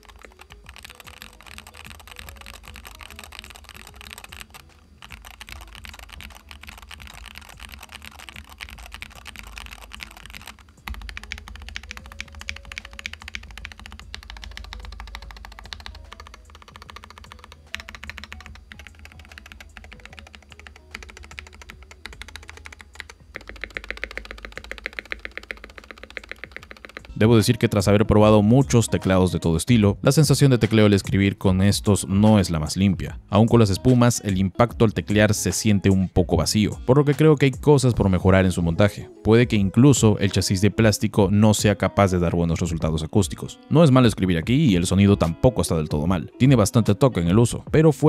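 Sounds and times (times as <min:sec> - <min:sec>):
keyboard key clacks: 0:00.0 - 0:27.1.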